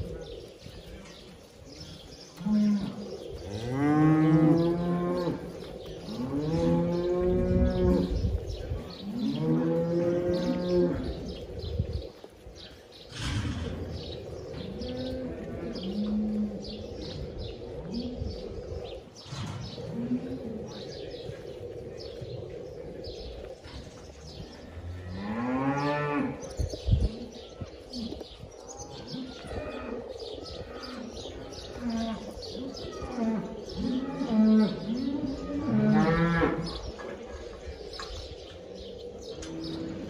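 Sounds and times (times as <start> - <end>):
cows mooing: 2.4 - 8.2, 9.0 - 11.2, 31.7 - 36.7.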